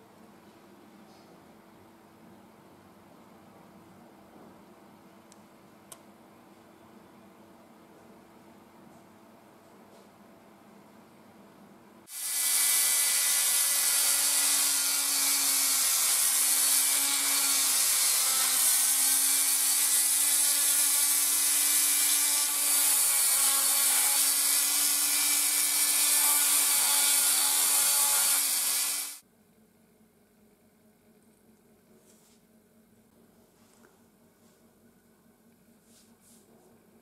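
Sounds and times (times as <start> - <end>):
rotary tool drilling plastic: 20.5 - 29.2.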